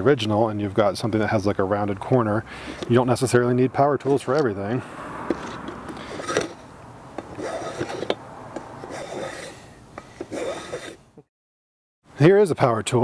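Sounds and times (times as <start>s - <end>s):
hand plane shaving wood: 5.3s - 6.6s, 7.2s - 11.0s.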